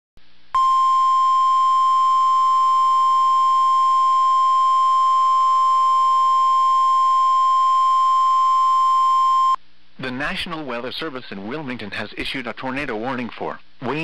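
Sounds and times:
steady alarm beep tone: 0.6s - 9.6s.

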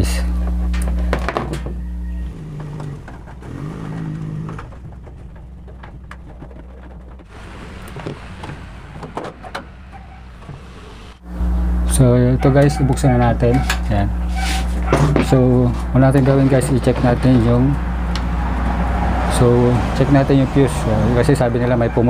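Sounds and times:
low steady hum: 0.0s - 18.8s
sheet-metal casing clicks and knocks: 2.6s - 7.3s.

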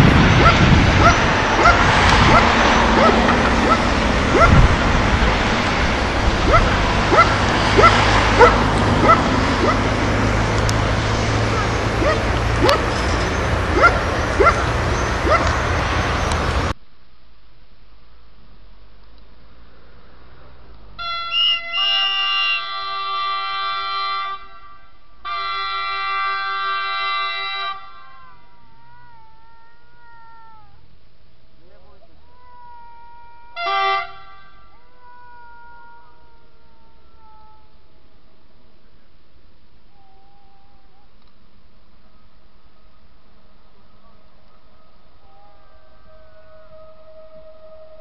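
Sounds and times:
background rumble: 0.0s - 21.0s
dog yipping: 0.4s - 4.6s, 6.4s - 9.8s, 11.5s - 15.6s
train horn blasts: 21.0s - 28.4s, 33.6s - 34.7s.

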